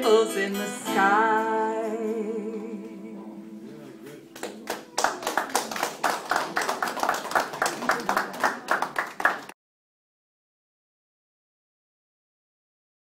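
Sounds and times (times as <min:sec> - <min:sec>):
audience clapping: 0:04.3 - 0:09.6.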